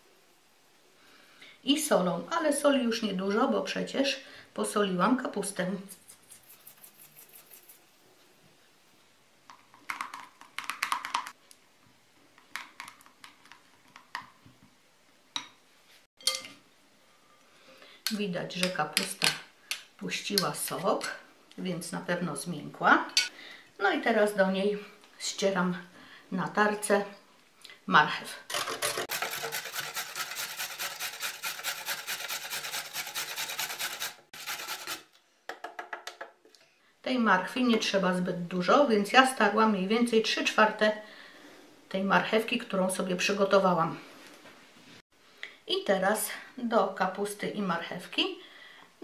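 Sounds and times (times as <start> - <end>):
utensils scraping a glass bowl: 28.6 - 35.0
carrot grated on metal grater: 28.6 - 35.1.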